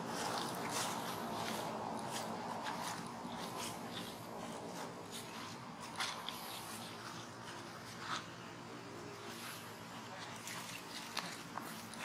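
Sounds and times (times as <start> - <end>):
footsteps on dry leaves: 0.0 - 8.4, 9.1 - 12.0.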